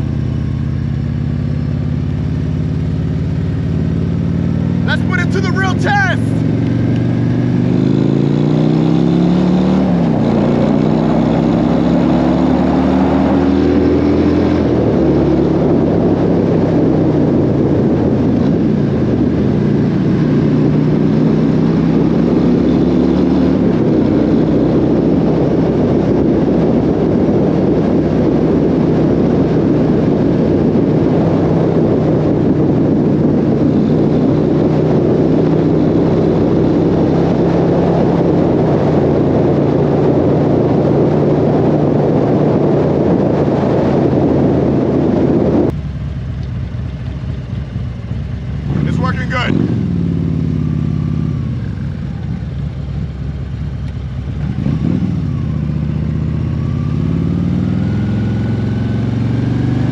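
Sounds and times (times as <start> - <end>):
motorcycle engine accelerating: 0.0 - 59.9
wind rush over microphone: 3.7 - 45.8, 47.7 - 59.9.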